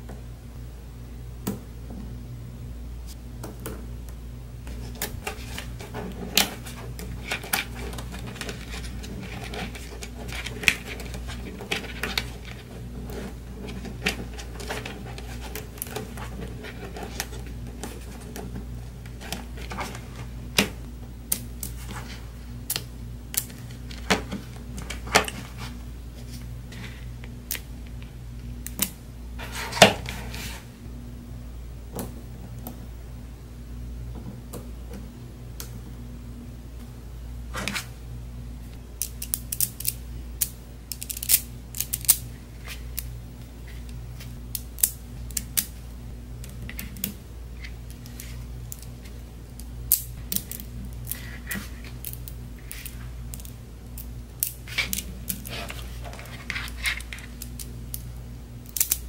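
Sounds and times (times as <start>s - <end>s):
steady low hum: 0.0s - 59.0s
magnet balls clicking together: 39.0s - 42.2s, 56.6s - 59.0s.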